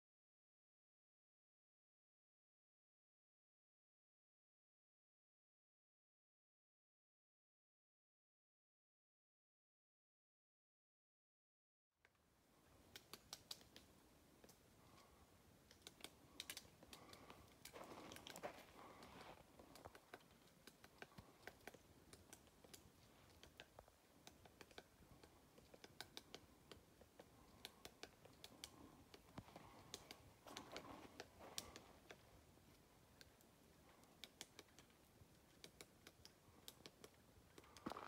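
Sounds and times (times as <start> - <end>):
woodpecker tapping on trunk: 12.8 - 38.0
soft rustles: 17.0 - 20.6.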